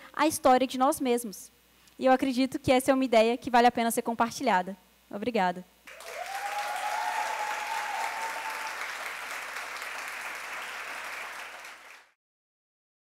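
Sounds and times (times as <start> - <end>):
audience applauding: 5.9 - 12.2.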